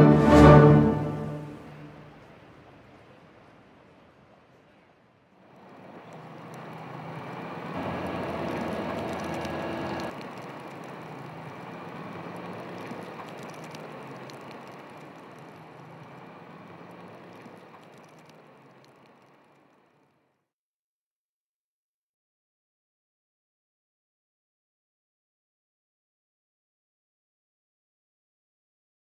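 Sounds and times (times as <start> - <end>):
refuse truck engine rumble: 0.0 - 19.9
steady whine: 5.6 - 19.8.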